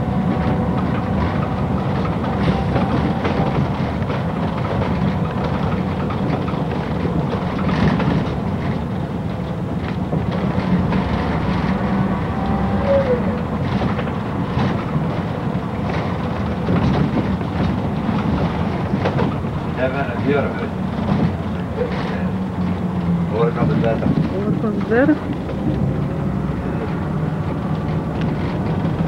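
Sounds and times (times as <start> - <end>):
bus body rattles and knocks: 0.0 - 29.0
bus engine running: 0.0 - 29.0.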